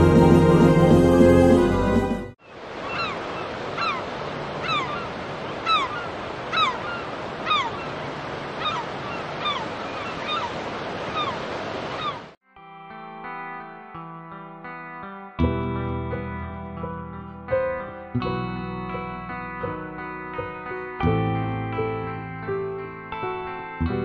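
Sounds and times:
sea surf on a beach: 2.4s - 12.4s
bird call sliding downward: 3.8s - 4.0s, 4.6s - 7.9s, 8.6s - 10.5s, 11.1s - 12.3s.

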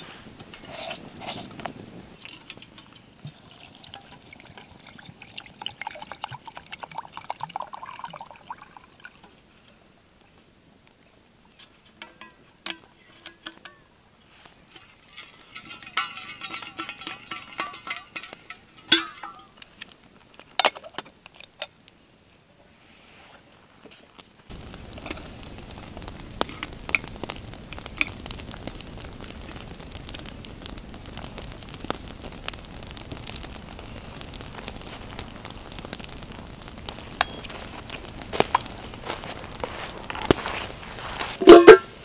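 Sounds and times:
water pouring into metal mug: 3.2s - 9.1s.

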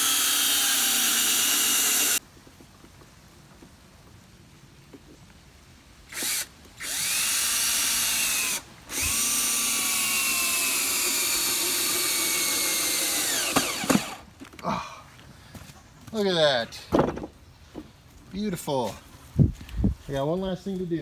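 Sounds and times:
cordless drill driving screw into wood: 0.0s - 2.2s, 6.1s - 14.2s.

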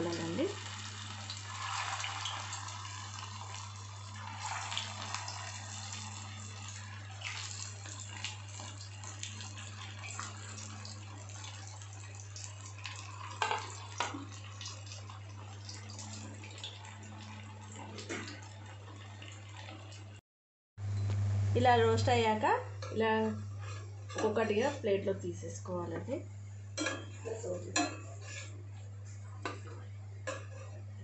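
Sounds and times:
food sizzling in hot oil: 0.0s - 20.1s
low hum: 20.8s - 23.6s.

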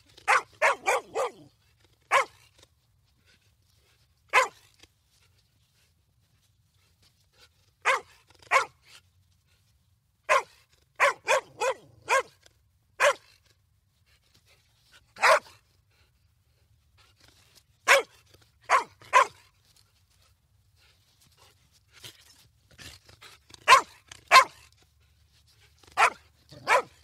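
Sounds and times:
dog barking: 0.2s - 1.5s, 2.1s - 2.4s, 4.3s - 4.6s, 7.8s - 8.8s, 10.3s - 12.4s, 13.0s - 13.3s, 15.2s - 15.6s, 17.9s - 18.1s, 18.7s - 19.4s, 23.7s - 24.6s, 26.0s - 27.0s.

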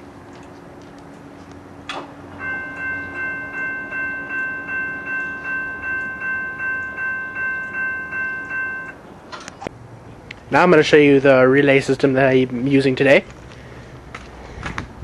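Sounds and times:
crossing signal bell ringing: 2.3s - 9.0s.

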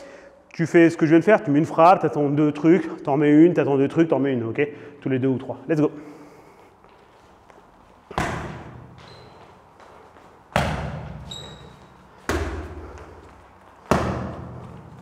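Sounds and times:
boxing punches smacking: 8.1s - 8.9s, 10.5s - 11.3s, 12.2s - 12.9s, 13.8s - 15.0s.

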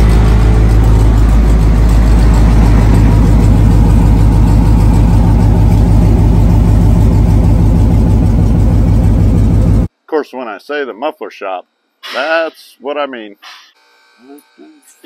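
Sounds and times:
car engine idling: 0.0s - 9.9s.

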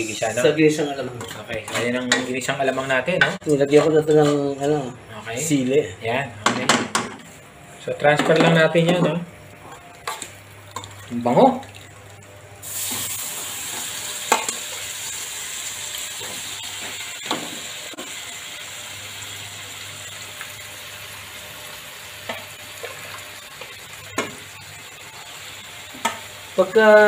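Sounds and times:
meat sizzling in a pan: 12.5s - 27.0s.

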